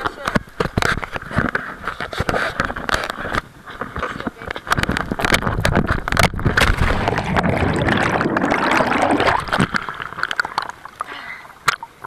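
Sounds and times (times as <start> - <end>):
wind noise: 0.3 - 10.4
rushing gurgling water: 4.7 - 12.0
water splashes: 4.7 - 12.0.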